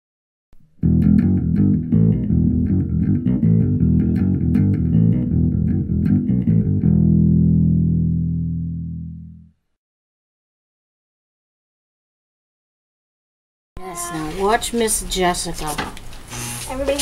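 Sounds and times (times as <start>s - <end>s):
bass and plucked guitar music: 0.6s - 9.6s.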